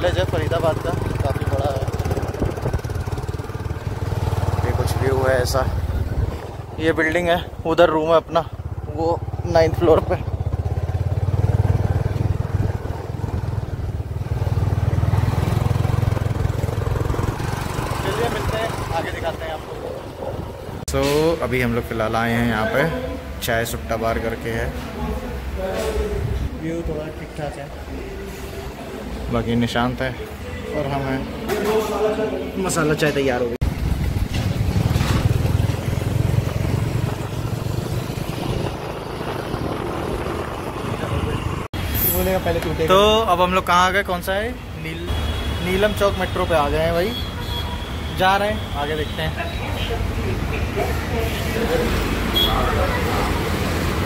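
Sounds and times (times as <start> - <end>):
motorcycle engine running: 0.0 - 6.8, 8.4 - 20.8, 33.6 - 41.7
road noise: 0.0 - 54.0.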